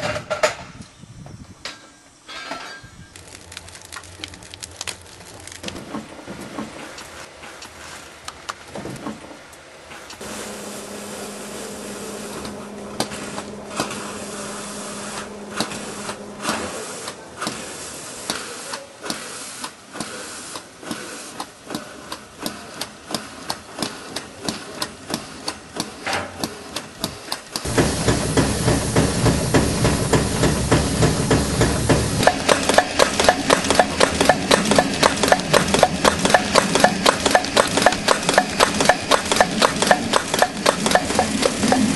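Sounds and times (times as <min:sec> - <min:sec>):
steam hiss: 0:09.9 - 0:41.9
steam pump knocking: 0:20.8 - 0:41.9.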